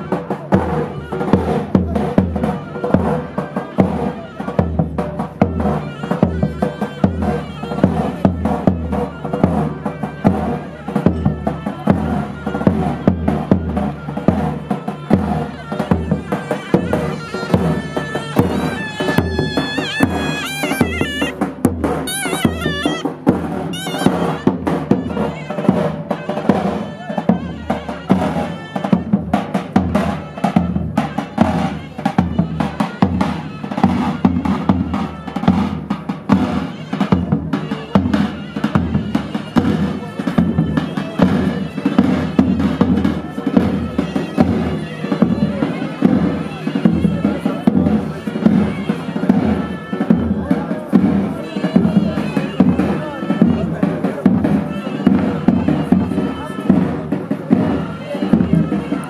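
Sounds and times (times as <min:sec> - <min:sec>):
driving drum beat: 0:00.0 - 0:59.0
reedy wind instrument melody: 0:00.0 - 0:59.0.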